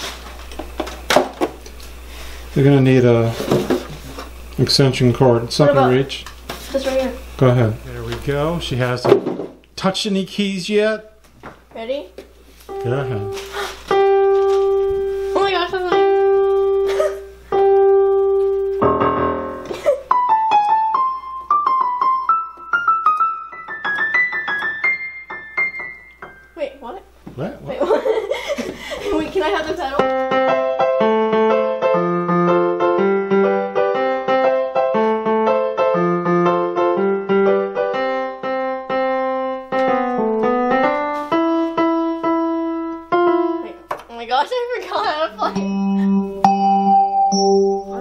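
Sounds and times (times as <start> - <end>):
keyboard notes: 12.7 - 26.9, 30.0 - 43.9, 44.9 - 48.0.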